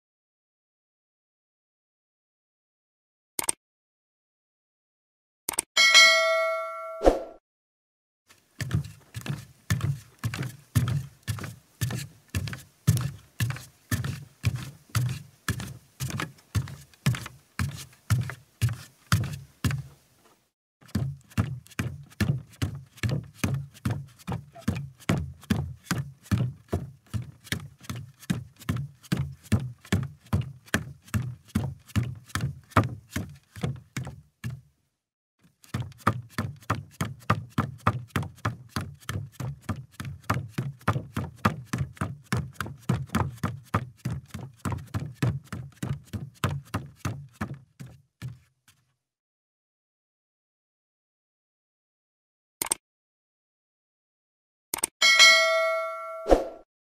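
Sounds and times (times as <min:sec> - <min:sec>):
footsteps on wooden floor: 0:08.6 - 0:19.9.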